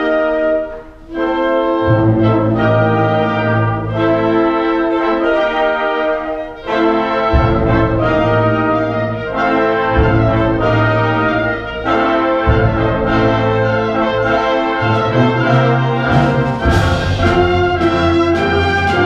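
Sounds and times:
brass chords: 0.0s - 19.0s
percussion strokes: 6.7s - 19.0s
sustained low notes: 7.3s - 19.0s.

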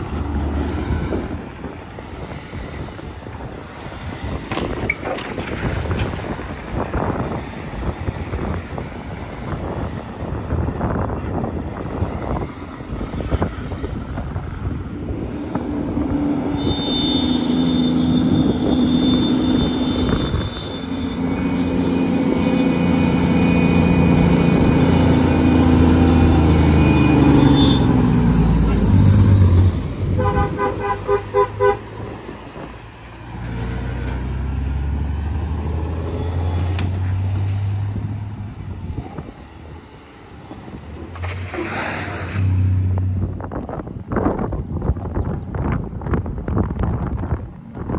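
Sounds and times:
dump truck engines labouring: 0.0s - 47.9s
vehicle horn tooting: 16.5s - 20.9s, 27.4s - 28.0s, 30.2s - 31.9s
vehicle engine passing: 21.1s - 43.5s.

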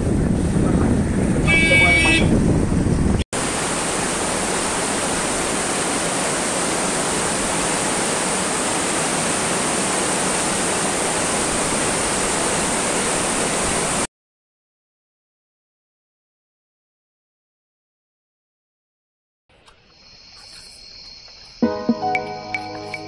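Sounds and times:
river rushing over rocks: 3.4s - 14.0s.

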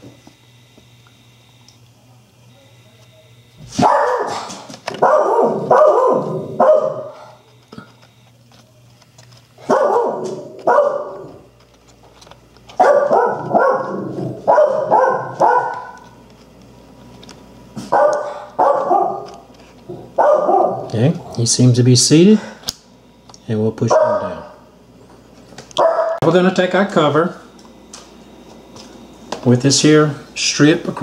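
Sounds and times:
dog barking: 3.8s - 7.3s, 9.6s - 11.4s, 12.8s - 16.1s, 17.8s - 19.4s, 20.2s - 20.9s, 23.9s - 24.6s, 25.8s - 26.2s.

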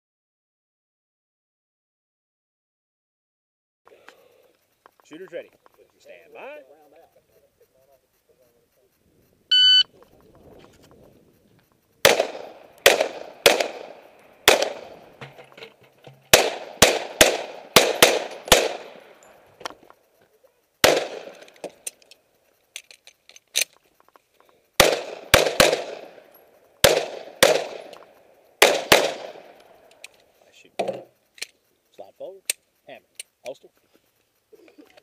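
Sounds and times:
handgun shots: 12.0s - 15.4s, 16.3s - 19.1s, 20.8s - 22.0s, 24.8s - 26.2s, 26.8s - 29.6s.

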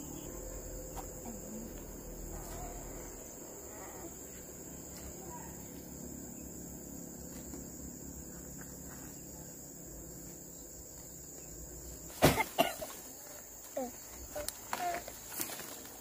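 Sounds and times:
insects chirring in grass: 0.0s - 16.0s
sacks rustling and knocking: 12.1s - 13.8s.

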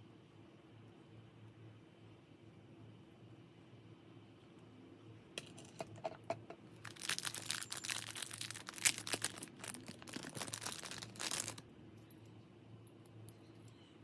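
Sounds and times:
plastic bag crinkling: 6.8s - 11.6s.

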